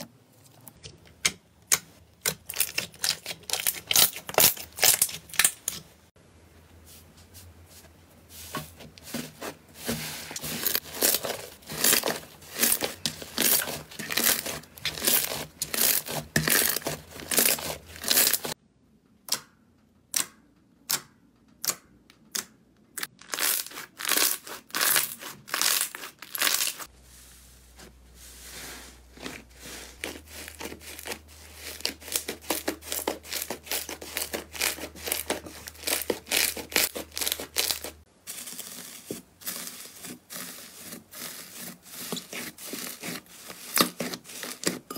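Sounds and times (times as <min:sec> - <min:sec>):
slime crackling and crunching: 0:02.2 - 0:05.9, 0:09.1 - 0:18.6, 0:23.0 - 0:26.9, 0:29.1 - 0:44.9.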